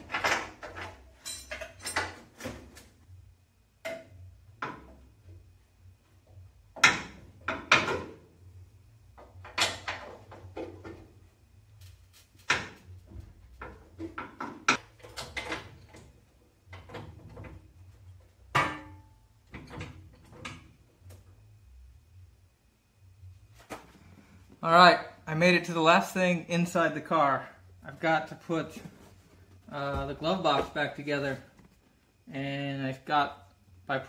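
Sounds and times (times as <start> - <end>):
metal clanks of hand tools: 0.1 - 2.2.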